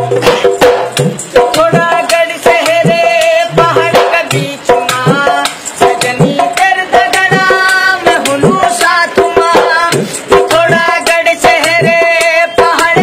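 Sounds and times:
hand drum played in quick rhythm: 0:00.0 - 0:13.0
man singing: 0:01.3 - 0:13.0.

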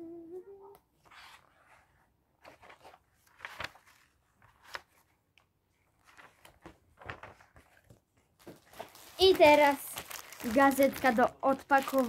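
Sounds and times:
magazine pages rustling: 0:01.0 - 0:12.0.

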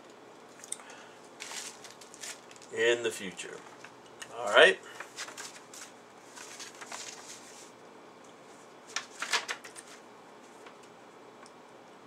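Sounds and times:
soft rustling: 0:01.2 - 0:02.8, 0:03.6 - 0:09.2.

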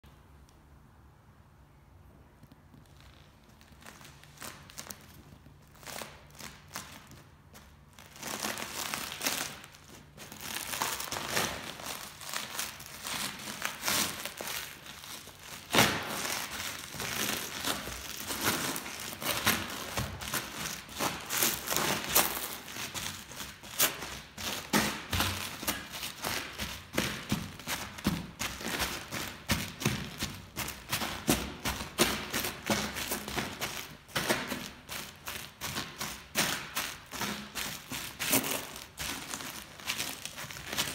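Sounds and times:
boots crunching crisps and bread: 0:03.1 - 0:40.9.

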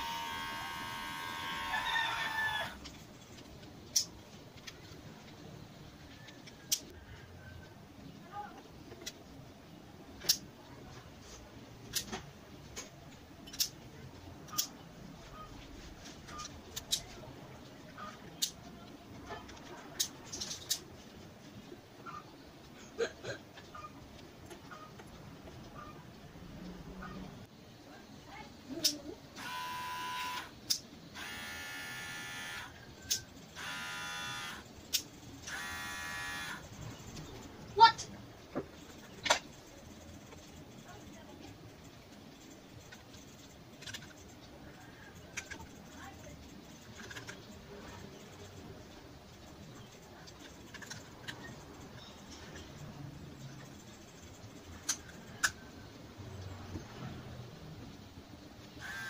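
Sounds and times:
hair clipper buzzing: 0:00.0 - 0:01.9, 0:29.4 - 0:30.5, 0:31.2 - 0:32.7, 0:33.6 - 0:34.6, 0:35.5 - 0:36.6, 0:58.8 - 0:59.0.

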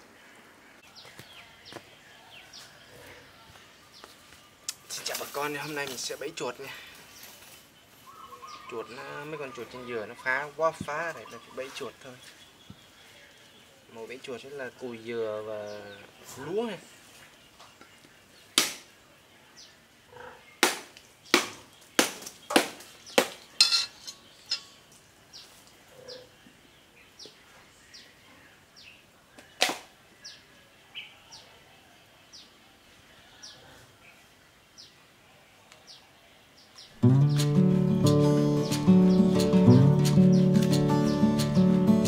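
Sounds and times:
bird chirping: 0:03.8 - 0:18.5, 0:21.2 - 0:29.1, 0:35.9 - 0:42.0.

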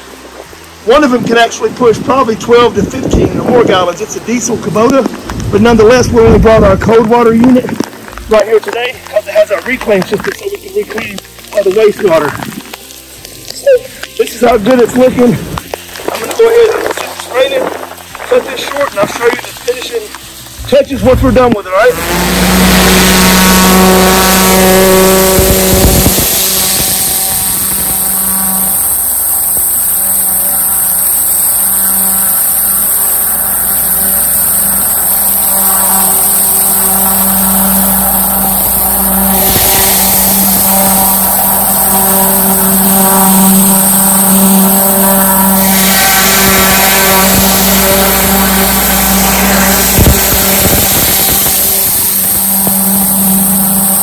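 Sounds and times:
spray hissing against concrete: 0:07.1 - 0:54.0
pressure washer running: 0:18.6 - 0:54.0.

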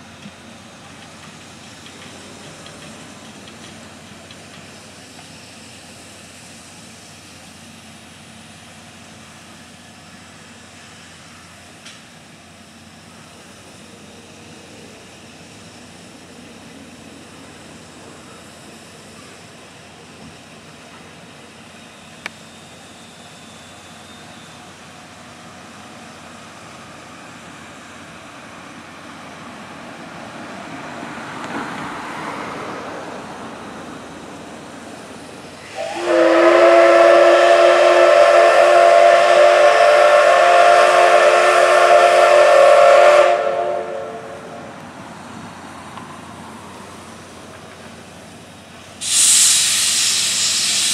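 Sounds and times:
steam hissing: 0:00.0 - 0:50.9
steam whistle blowing: 0:35.6 - 0:44.6, 0:49.0 - 0:50.9.

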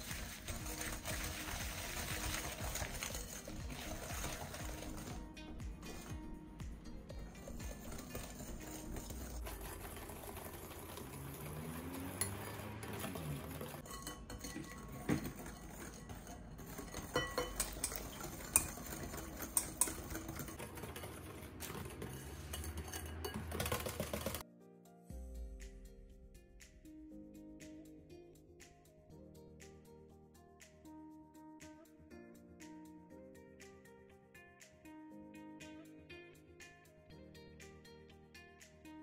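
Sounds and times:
utensils clinking in mixing bowl: 0:00.0 - 0:06.2, 0:07.1 - 0:24.4
background music: 0:00.0 - 0:39.0.

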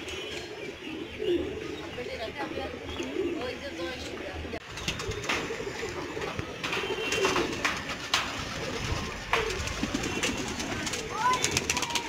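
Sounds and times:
pigeons cooing: 0:00.0 - 0:12.0
pigeon wing claps: 0:04.8 - 0:05.6, 0:06.3 - 0:12.0.

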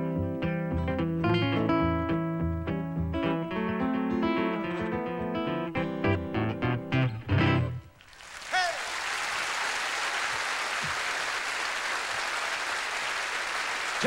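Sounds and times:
fingerpicked nylon-string guitar: 0:00.0 - 0:07.9
audience applauding: 0:08.0 - 0:14.0
falling cheer: 0:08.1 - 0:14.0.

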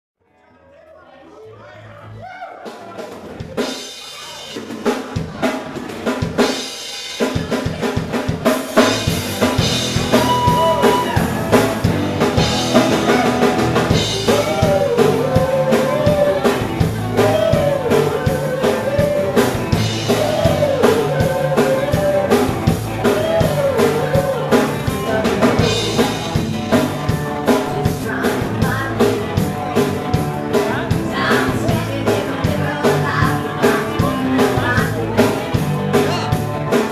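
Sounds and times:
live rock band playing: 0:02.6 - 0:36.9
woman singing: 0:13.9 - 0:36.4.

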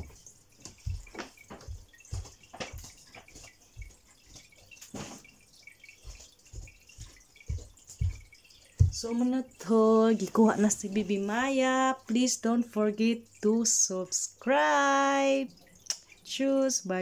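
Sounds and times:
soft footsteps: 0:00.0 - 0:11.3.

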